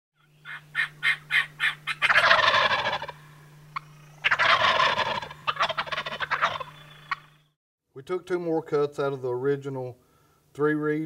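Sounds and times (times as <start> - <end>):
turkey gobbling: 0.2 - 7.5
faint steady hum: 0.2 - 11.0.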